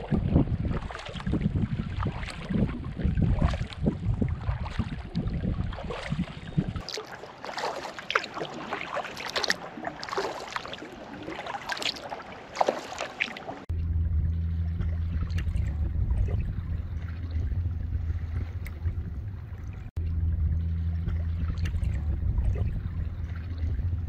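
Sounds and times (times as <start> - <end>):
wind rumbling on microphone: 0.0 - 6.9, 13.6 - 24.0
paddle splashing in water: 0.0 - 13.7, 14.6 - 20.0, 20.9 - 24.0
water dripping: 4.6 - 24.0.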